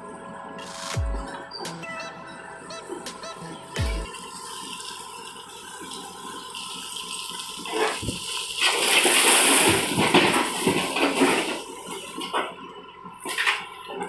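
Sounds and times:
mud pouring and sliding: 7.6s - 12.2s.

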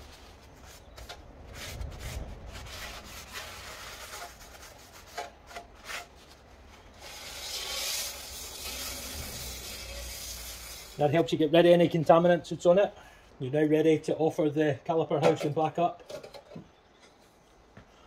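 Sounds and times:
cloth wiping metal disc: 0.0s - 11.1s
spray hissing: 7.1s - 11.0s.

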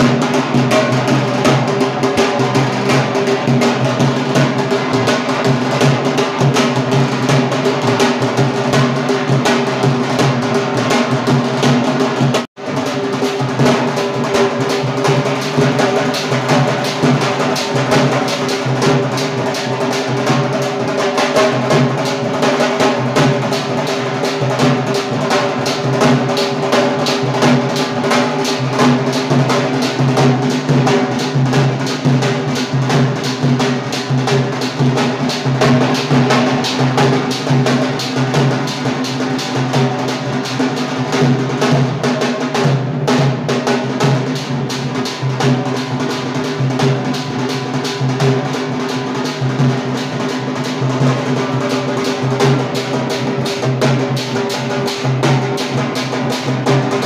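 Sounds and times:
drums beaten with sticks: 0.0s - 57.0s.

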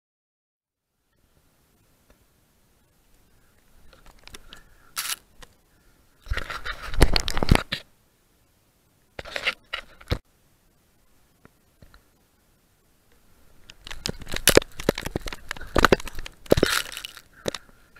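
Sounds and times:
sand and clothing scraping on camera: 3.9s - 5.3s, 6.3s - 7.9s.

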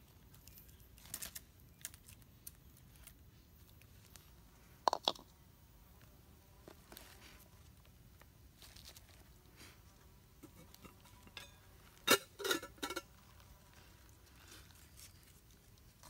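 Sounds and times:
pot and lid rattling: 10.4s - 13.1s
metal pot clinking down: 10.8s - 13.1s.

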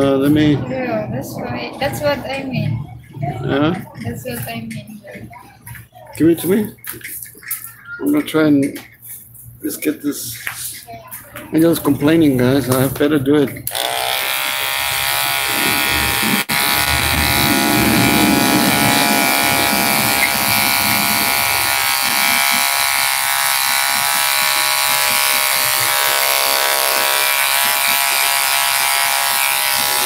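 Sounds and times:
electric hair clipper buzzing: 13.7s - 30.0s.

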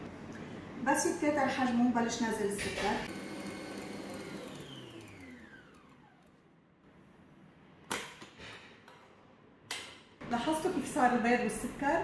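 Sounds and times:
stand mixer motor whining: 3.1s - 6.4s.

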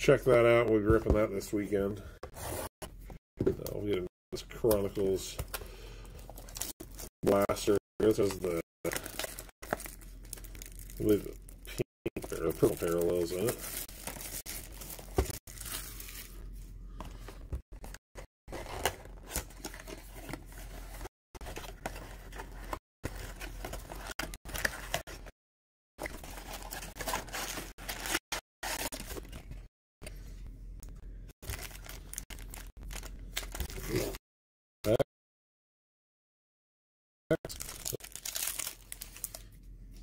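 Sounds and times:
plastic wrap tearing and crinkling: 8.9s - 11.3s, 37.5s - 39.5s.

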